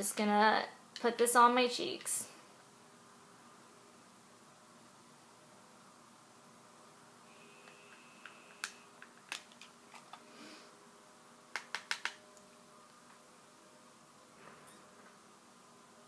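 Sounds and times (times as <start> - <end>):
makeup items clicking on desk: 11.5 - 12.2.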